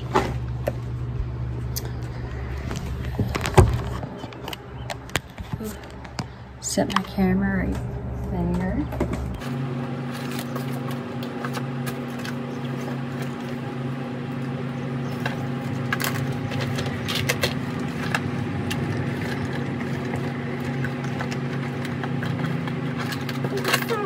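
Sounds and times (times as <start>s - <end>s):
ceiling fan humming: 0.0s - 24.0s
rummaging in a bag: 15.1s - 24.0s.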